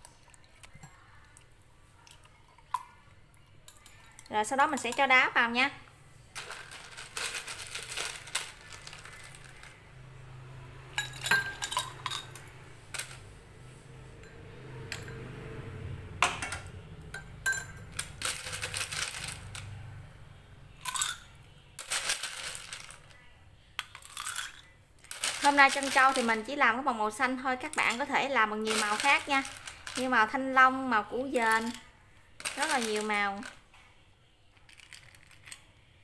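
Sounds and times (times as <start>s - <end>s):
ice cubes clinking in glass: 6.4s - 9.7s, 11.0s - 12.4s, 17.4s - 19.7s, 20.8s - 21.2s, 21.8s - 23.0s, 23.9s - 26.5s, 27.8s - 30.2s, 32.4s - 33.4s.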